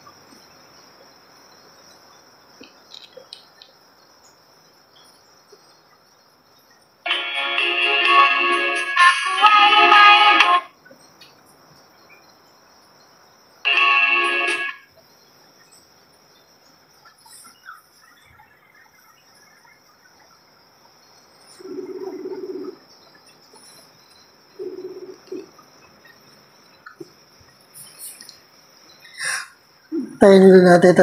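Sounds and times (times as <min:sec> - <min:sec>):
faint high hum: 0:04.0 - 0:31.0
phone call tones: 0:07.1 - 0:10.6, 0:13.7 - 0:14.8
music from phone speaker: 0:07.1 - 0:10.7, 0:13.7 - 0:14.8.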